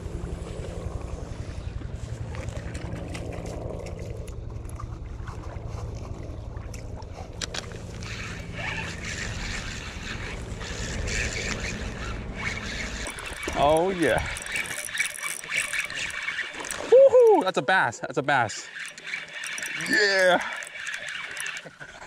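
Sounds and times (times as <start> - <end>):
fishing reel cranking: 7.4 - 17.6, 18.3 - 22.0.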